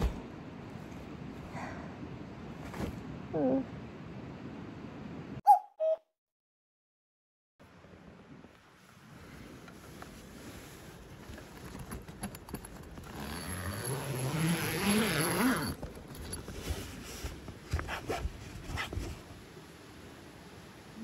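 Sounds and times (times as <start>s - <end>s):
tent zipper rasping open: 11.4s - 19.2s.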